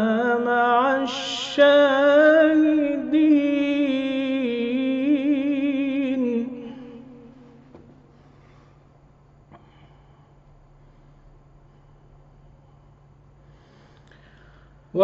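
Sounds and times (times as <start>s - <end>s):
man reciting melodically: 0.0s - 7.5s.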